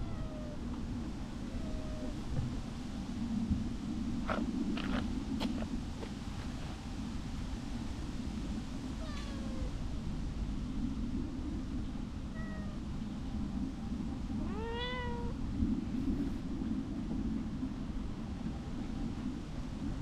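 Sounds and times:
cat meowing: 0.0s - 0.6s, 1.5s - 2.2s, 9.0s - 9.7s, 12.3s - 12.8s, 14.4s - 15.4s
steady low rumble: 0.0s - 20.0s.

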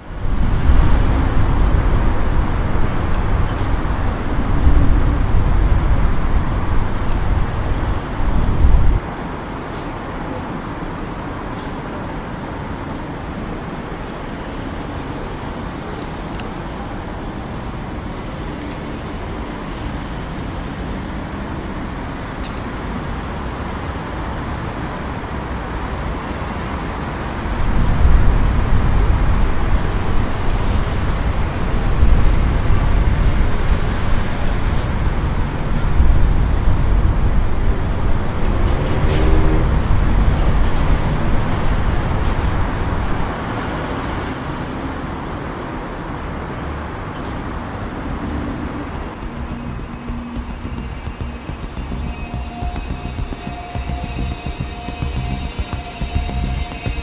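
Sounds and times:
deep low rumble: 0.0s - 9.0s, 27.6s - 43.3s, 49.1s - 57.0s
passing cars: 0.0s - 22.8s, 23.4s - 57.0s.

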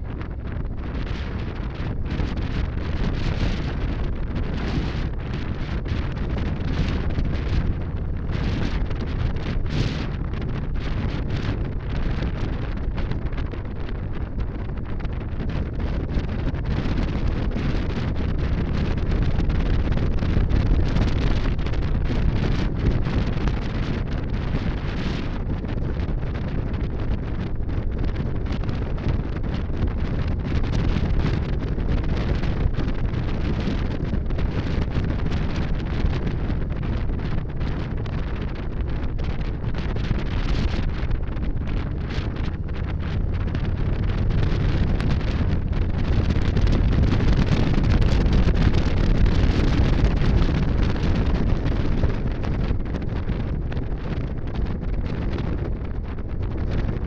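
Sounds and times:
motorcycle engine running: 0.0s - 57.0s
wind buffeting microphone: 0.0s - 57.0s.

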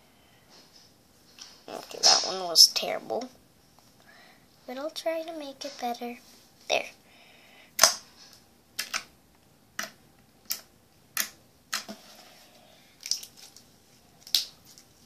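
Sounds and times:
slime clicking and popping: 7.8s - 8.0s, 8.8s - 9.1s, 9.8s - 11.9s.

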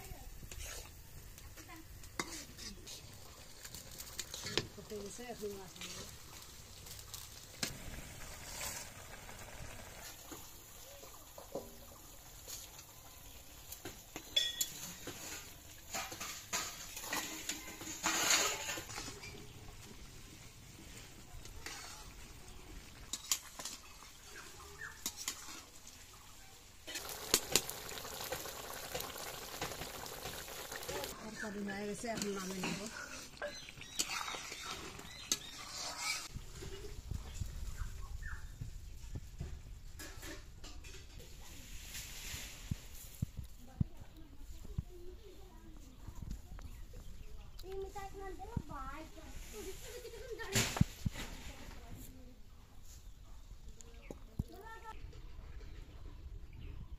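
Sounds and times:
spatula scraping a pan: 0.4s - 1.0s, 2.1s - 5.2s, 5.8s - 9.2s, 13.8s - 19.5s, 21.0s - 22.3s, 23.1s - 25.8s, 26.9s - 36.4s.

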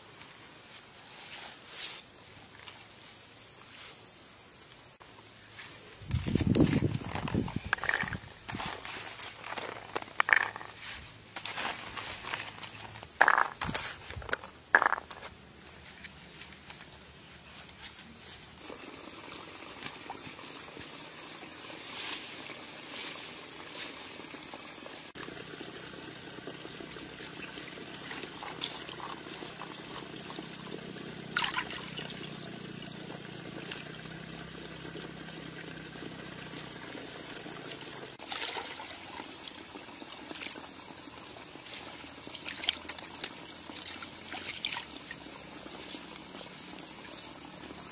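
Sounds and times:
water trickling and sloshing: 19.1s - 32.9s, 36.9s - 47.9s.

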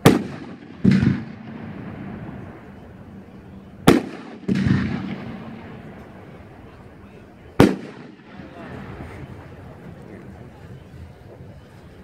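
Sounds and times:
firework shells cracking and banging: 3.9s - 6.2s.

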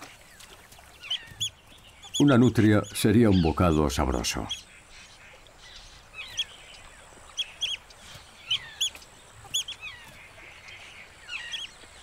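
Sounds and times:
otters chirping alarm calls: 0.3s - 12.0s
otters squeaking: 1.0s - 4.6s, 7.4s - 10.4s.

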